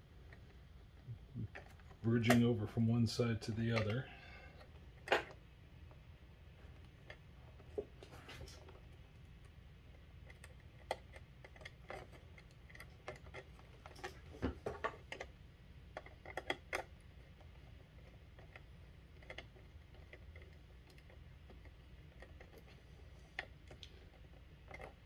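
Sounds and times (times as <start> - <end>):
wires clicking into terminals: 1.3 - 4.0.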